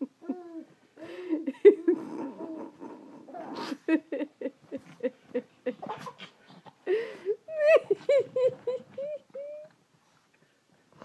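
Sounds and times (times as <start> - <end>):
baby giggling: 7.5 - 9.7.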